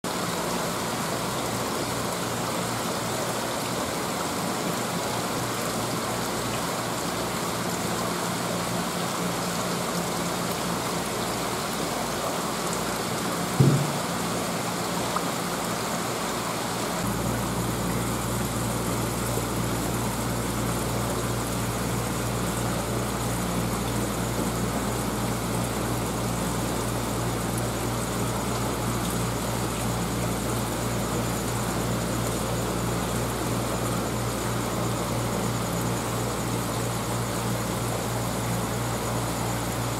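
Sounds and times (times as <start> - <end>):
aquarium water rushing: 0.0 - 39.9
low pump hum: 0.1 - 39.9
knock: 13.6 - 14.1.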